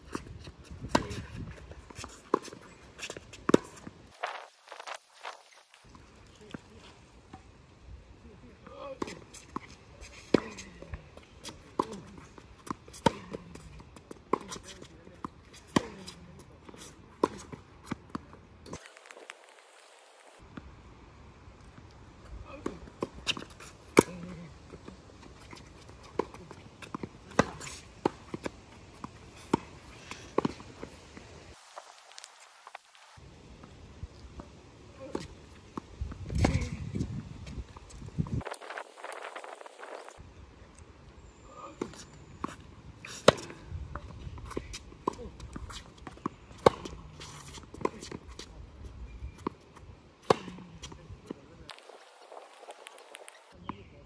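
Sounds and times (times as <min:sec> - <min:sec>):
shoes scuffing on court: 0:00.0 - 0:07.4, 0:09.0 - 0:20.4, 0:22.6 - 0:34.2, 0:41.7 - 0:53.9
racket hitting tennis ball: 0:00.8 - 0:03.9, 0:08.9 - 0:18.9, 0:22.6 - 0:31.1, 0:36.3 - 0:36.8, 0:41.8 - 0:48.4, 0:50.2 - 0:51.0
tennis ball bouncing: 0:09.0 - 0:18.8, 0:22.6 - 0:31.0, 0:41.8 - 0:48.4, 0:50.2 - 0:51.4.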